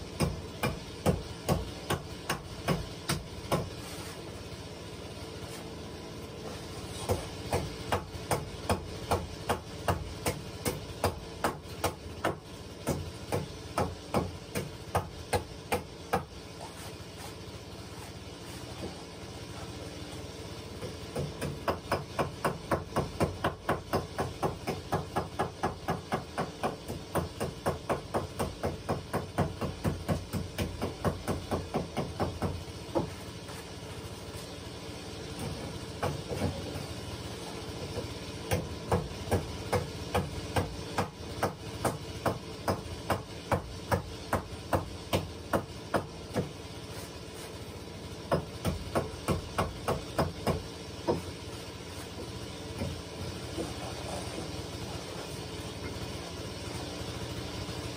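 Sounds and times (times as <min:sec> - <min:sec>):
hatchet striking wooden planks: 0:00.1 - 0:03.8, 0:06.8 - 0:16.8, 0:20.8 - 0:33.9, 0:35.4 - 0:37.0, 0:37.8 - 0:47.6, 0:48.2 - 0:53.8.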